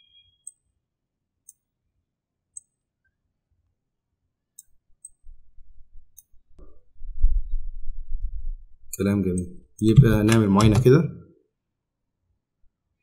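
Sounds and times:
computer mouse clicking: 0:01.4 - 0:01.7.

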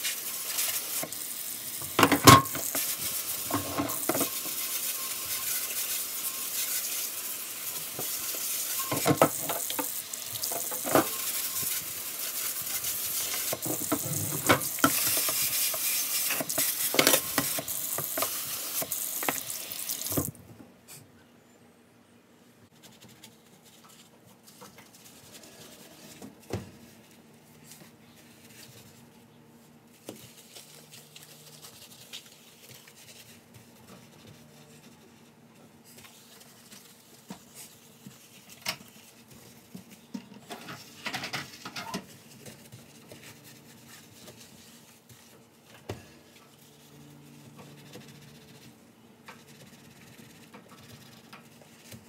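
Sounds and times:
kitchen items knocking and clattering: 0:01.8 - 0:04.6, 0:07.9 - 0:11.8, 0:12.7 - 0:18.4.

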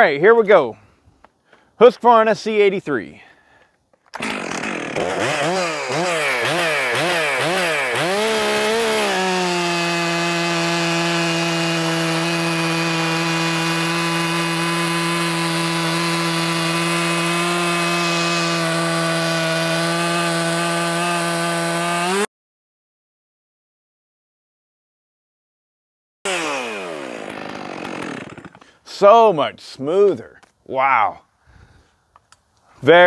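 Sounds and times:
chainsaw cutting a log: 0:04.2 - 0:22.3, 0:26.2 - 0:28.8.

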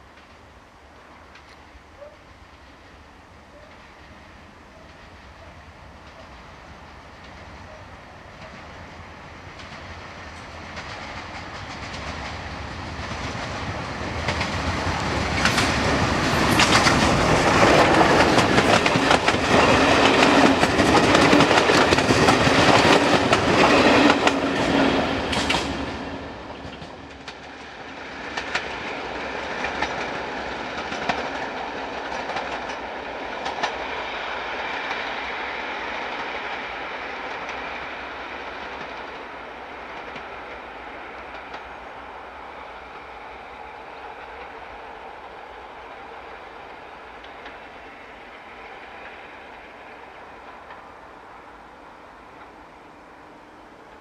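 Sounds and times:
steam train passing: 0:00.0 - 0:54.0
wheels clicking over rail joints: 0:09.5 - 0:24.7.

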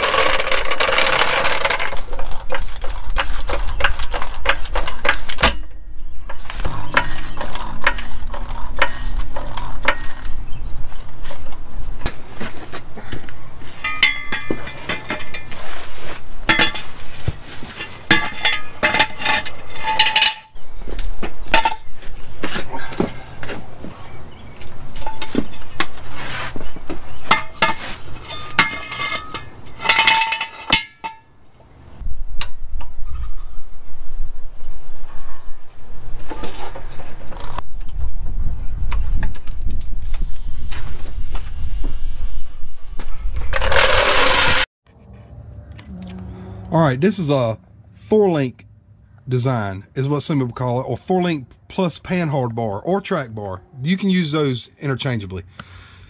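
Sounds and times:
floor jack clanking: 0:00.0 - 0:10.2, 0:13.7 - 0:20.6, 0:25.0 - 0:31.3, 0:43.5 - 0:44.7
metal jack stand clinking: 0:13.7 - 0:15.6, 0:16.5 - 0:17.0, 0:17.6 - 0:20.6, 0:21.5 - 0:22.0, 0:27.2 - 0:31.3.

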